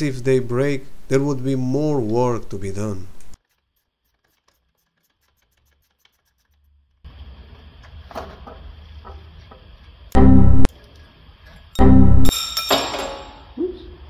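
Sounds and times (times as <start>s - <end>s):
loud ringing burst: 10.2s - 10.7s, 11.8s - 12.3s.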